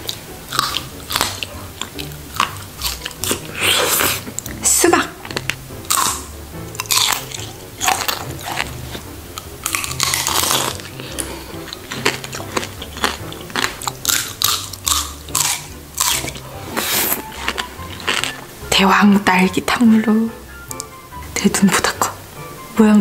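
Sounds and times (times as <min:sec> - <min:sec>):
chewing: 0:00.0 - 0:04.6, 0:05.2 - 0:18.5
hard candy shell crunching: 0:00.0 - 0:04.6, 0:05.2 - 0:18.5
soft background music: 0:00.0 - 0:23.0.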